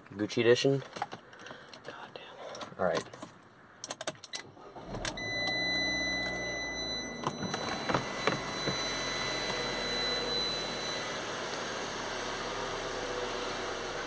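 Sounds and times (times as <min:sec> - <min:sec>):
car engine starting and idling: 0:04.4 - 0:14.0
high electronic tone: 0:05.2 - 0:11.4.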